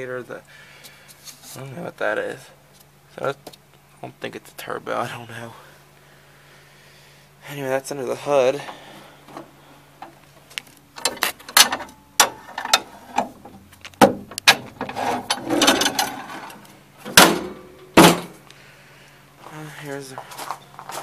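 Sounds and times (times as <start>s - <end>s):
metal parts clicking and rattling: 11.0s - 17.5s
heavy thumps: 13.2s - 18.4s.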